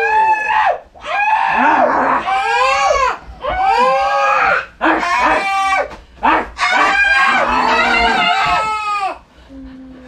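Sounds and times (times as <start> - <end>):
person screaming: 0.0 - 9.2.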